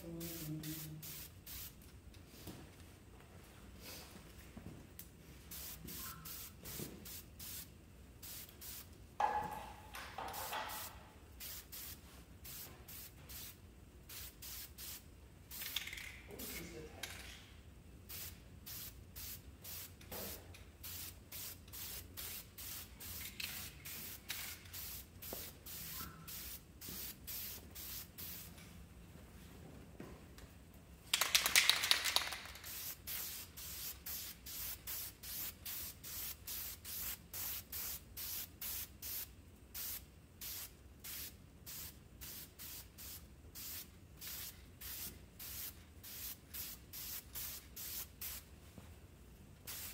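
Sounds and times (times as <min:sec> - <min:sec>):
spray can hissing: 0:00.3 - 0:01.8, 0:05.5 - 0:08.9, 0:10.2 - 0:15.9, 0:18.1 - 0:28.5, 0:31.2 - 0:48.4, 0:49.7 - 0:49.9.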